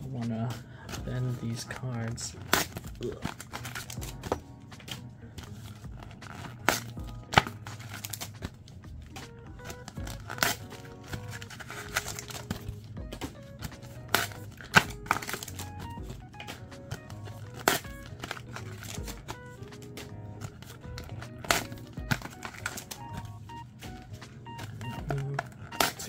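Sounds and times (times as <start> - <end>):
background music: 0.0 - 26.0
plastic foil packaging crinkling: 1.2 - 4.0, 9.6 - 12.6, 13.6 - 19.9.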